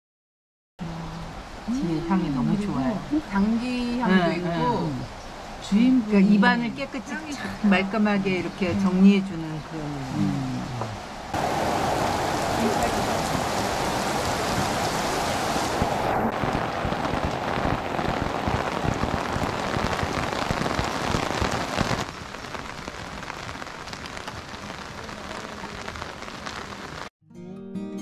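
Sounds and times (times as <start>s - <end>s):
heavy rain on asphalt: 10.5s - 27.1s.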